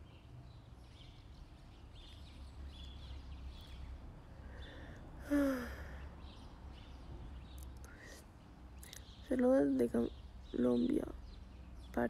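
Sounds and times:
faint bird chirps: 0:00.0 - 0:12.0
woman sighing: 0:05.2 - 0:06.0.

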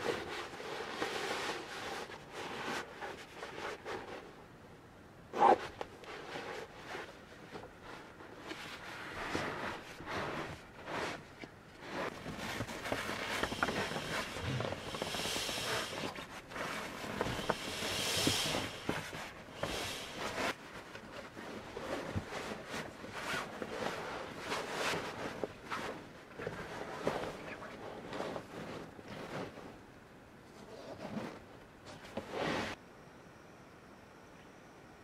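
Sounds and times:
fabric mat rustling and scuffing: 0:05.4 - 0:29.9, 0:30.5 - 0:32.8.

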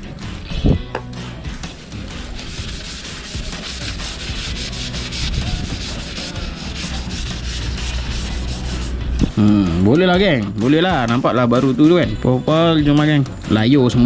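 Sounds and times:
tissue rubbing on metal part: 0:01.6 - 0:09.0.

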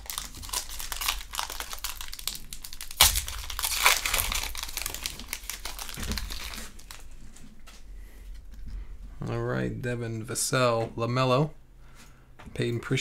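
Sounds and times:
foil wrapper tearing and crinkling: 0:00.0 - 0:07.2
loud foil crackle: 0:00.0 - 0:07.3.

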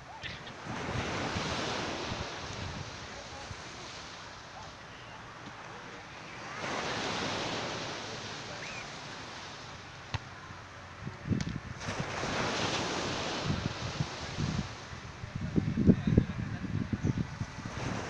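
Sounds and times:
wind buffeting microphone: 0:00.0 - 0:03.6, 0:11.0 - 0:18.0.

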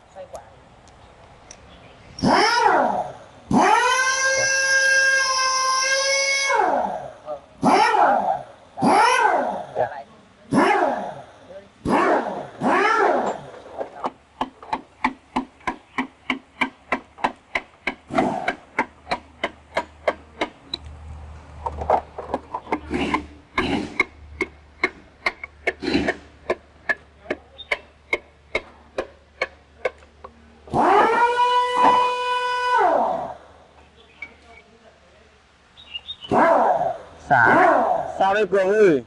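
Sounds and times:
short wavering calls: 0:35.8 - 0:38.2.

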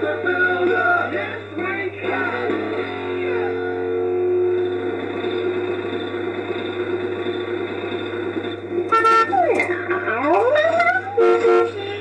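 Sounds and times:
ride motor rumble: 0:04.6 - 0:12.0
ride tune note: 0:08.9 - 0:12.0.

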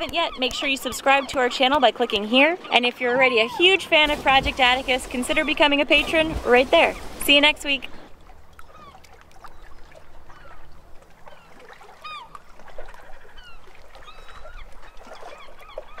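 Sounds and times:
flock of birds calling: 0:00.0 - 0:07.1.

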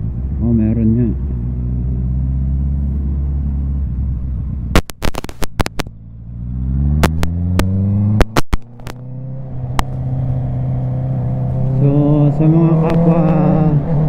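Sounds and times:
motorcycle engine accelerating: 0:00.0 - 0:14.0
sharp exhaust pops: 0:04.7 - 0:06.0, 0:06.9 - 0:09.1.

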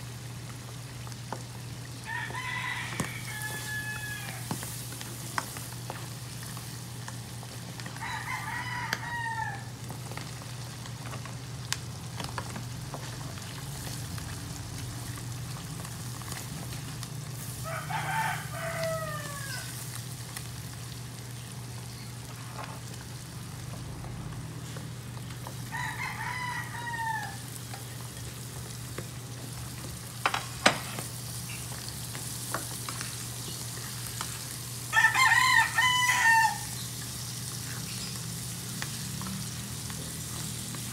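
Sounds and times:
food frying in a wok: 0:00.0 - 0:40.9
rooster crowing: 0:02.0 - 0:04.6, 0:07.8 - 0:09.8, 0:17.5 - 0:19.8, 0:25.6 - 0:27.6, 0:34.9 - 0:36.8.

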